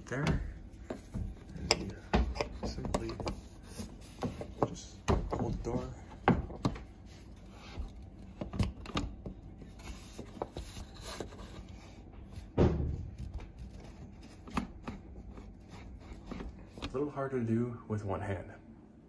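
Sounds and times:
tool knocking and clicking on fastener: 0:00.2 - 0:03.4.

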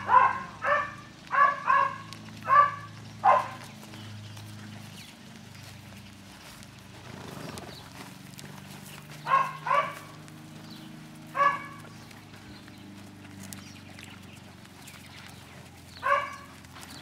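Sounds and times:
dog barking: 0:00.0 - 0:03.6, 0:09.2 - 0:10.2, 0:11.3 - 0:11.8, 0:16.0 - 0:16.5.

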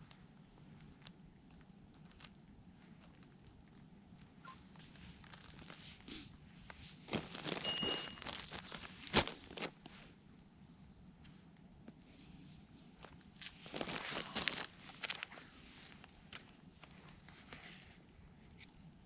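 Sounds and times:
footsteps crunching on pebbles: 0:07.1 - 0:09.8
faint high beep: 0:07.6 - 0:08.2.

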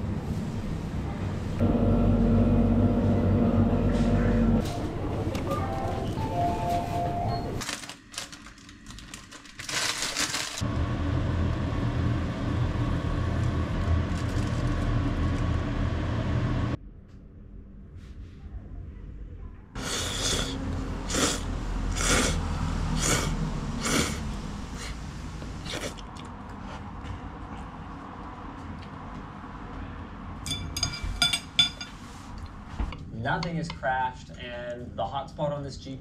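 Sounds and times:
noodle slurps: 0:19.8 - 0:25.0, 0:25.6 - 0:26.3.

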